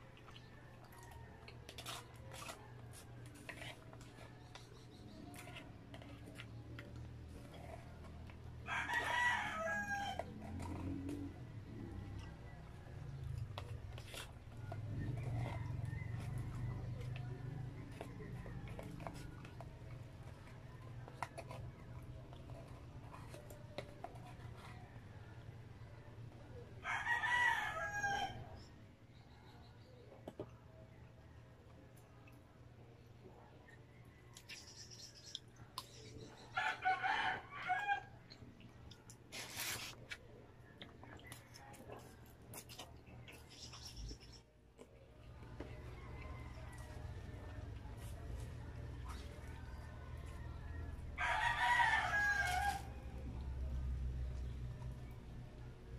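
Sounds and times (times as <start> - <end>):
slurping: 0.0 - 25.2, 38.3 - 51.0
plastic spoon scraping paper box: 1.2 - 12.3, 13.0 - 25.2, 39.3 - 40.2
rooster crowing: 8.6 - 10.2, 26.8 - 28.4, 36.6 - 38.1, 50.4 - 53.0.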